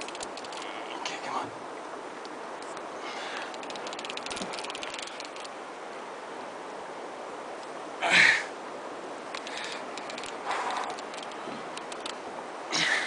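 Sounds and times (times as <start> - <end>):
fishing reel clicking: 0.0 - 0.7, 3.4 - 5.5, 9.3 - 12.2
steady background rush: 0.0 - 13.0.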